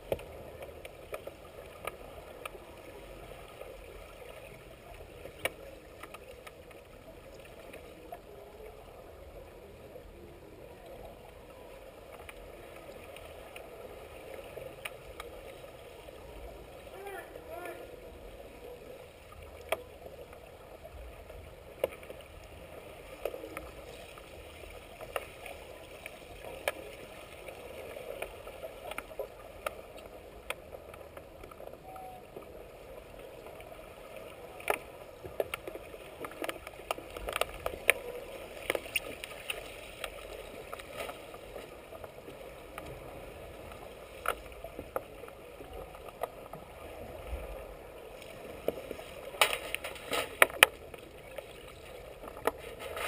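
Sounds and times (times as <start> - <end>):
underwater clicks and knocks: 34.6 - 41.2, 44.2 - 46.7, 48.6 - 51.6, 52.2 - 53.0.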